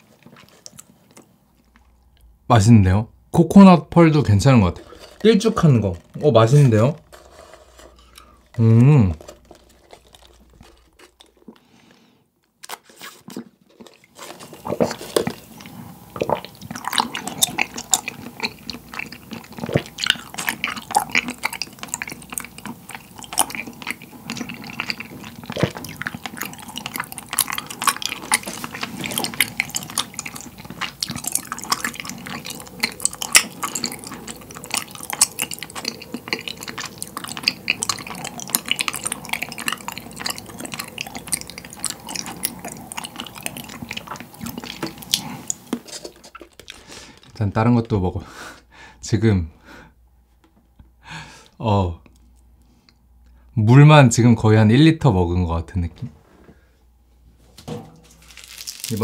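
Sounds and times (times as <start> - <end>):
wet chewing mouth sounds: 0.0 - 2.4, 4.4 - 47.4.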